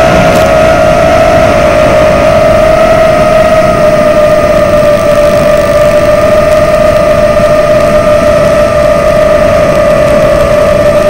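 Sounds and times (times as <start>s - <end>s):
rush of air: 0.0s - 5.6s
drone motors whining: 0.0s - 11.0s.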